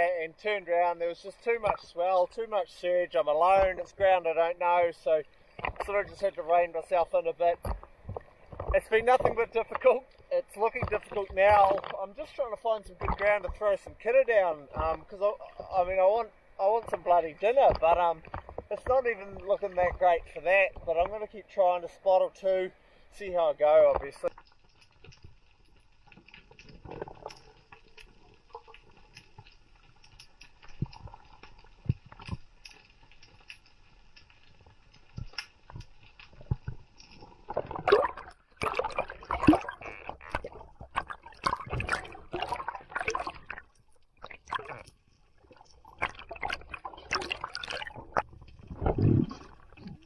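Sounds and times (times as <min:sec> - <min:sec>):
water sloshing and gurgling: 0:00.0 - 0:50.0
faint underwater clicks: 0:01.0 - 0:50.0.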